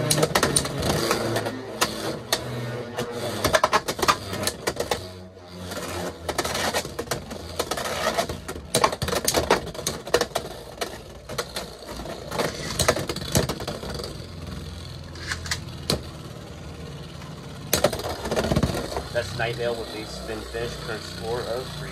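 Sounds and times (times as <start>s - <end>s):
tops clacking together: 0.0s - 5.1s, 5.8s - 16.2s, 17.2s - 19.8s
spinning tops whirring: 0.0s - 21.9s.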